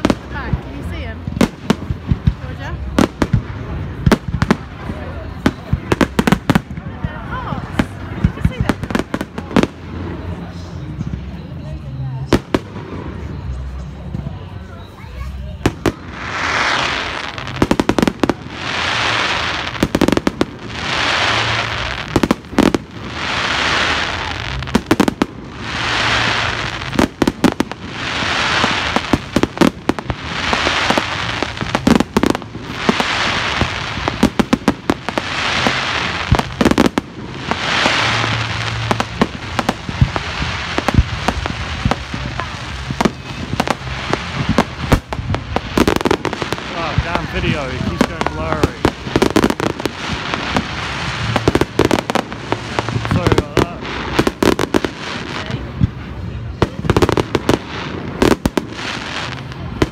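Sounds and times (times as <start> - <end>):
firework bangs and crackles: 0.0 - 59.9
firework hiss: 15.1 - 59.9.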